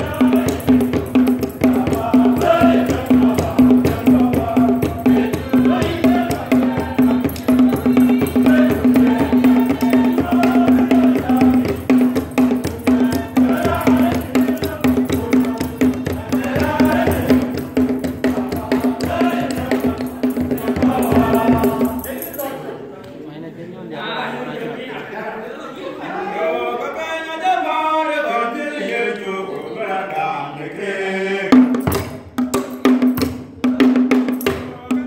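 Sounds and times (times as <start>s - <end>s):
rattling percussion: 0.0s - 22.7s, 31.5s - 35.0s
choir singing: 0.0s - 23.0s, 24.0s - 31.9s
hand clapping: 7.3s - 7.6s.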